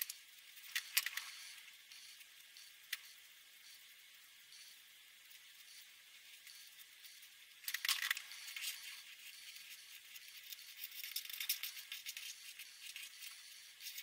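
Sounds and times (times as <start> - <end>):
marker scratching on paper: 8.2 - 14.0.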